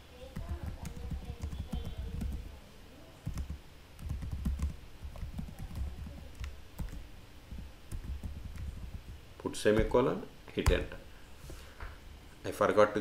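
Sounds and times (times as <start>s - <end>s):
typing on computer keyboard: 0.4s - 2.5s, 3.2s - 7.0s, 7.9s - 9.2s.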